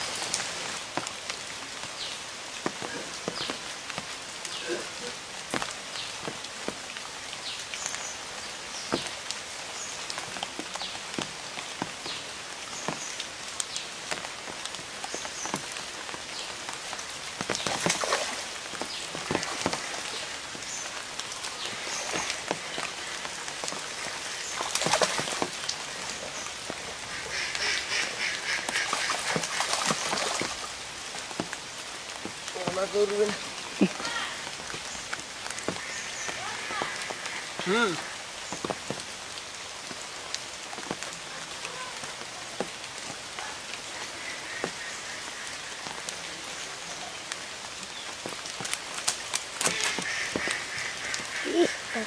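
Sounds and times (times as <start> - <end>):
fish splashing in water: 17.5 - 20.2, 24.0 - 25.7, 27.2 - 30.8.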